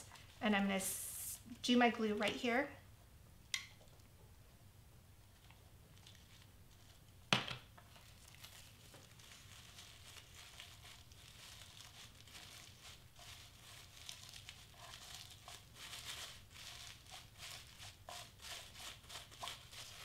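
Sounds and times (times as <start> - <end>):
tissue paper rustling: 7.9 - 20.0.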